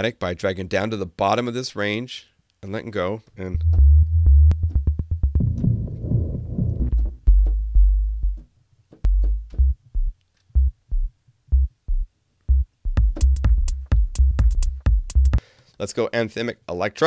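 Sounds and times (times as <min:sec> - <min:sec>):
electronic bass notes: 0:03.5 - 0:08.5, 0:09.1 - 0:15.4.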